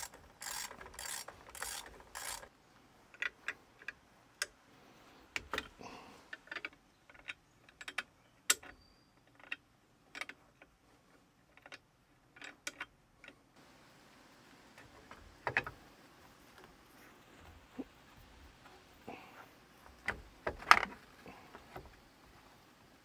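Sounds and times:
ratchet clicking on bolt: 0.0 - 2.5.

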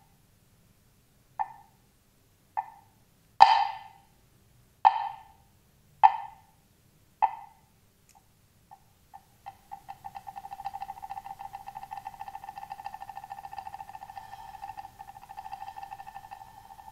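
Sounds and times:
mallet striking woodblock: 3.4 - 4.0, 4.9 - 5.3, 6.0 - 6.4, 9.5 - 16.9.

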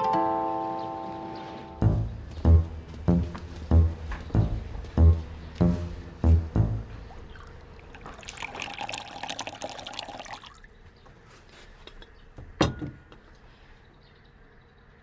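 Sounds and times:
tea pouring into ceramic cup: 7.4 - 10.6.

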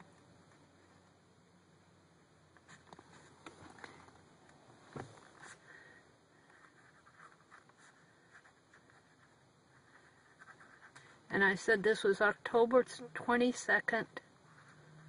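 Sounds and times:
pen scratching on paper: 6.5 - 11.2.

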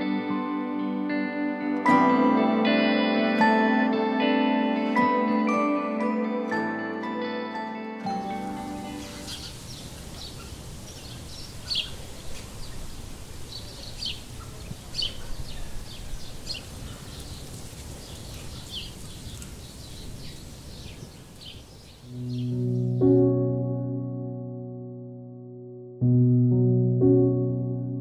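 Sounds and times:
songbirds chirping: 8.1 - 23.3.

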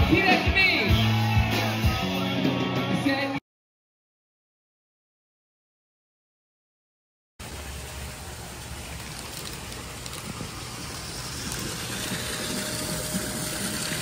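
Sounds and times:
water splashing into pool: 7.4 - 14.0.

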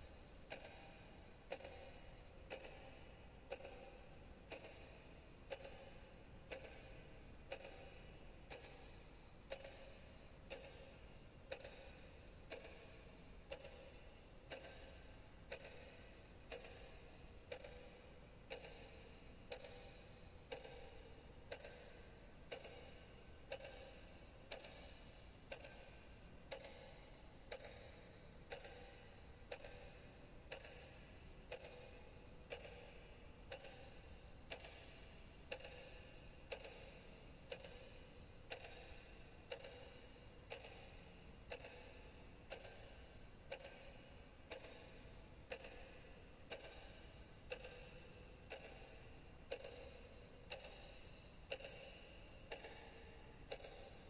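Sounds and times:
ringing ticks: 18.4 - 54.0.

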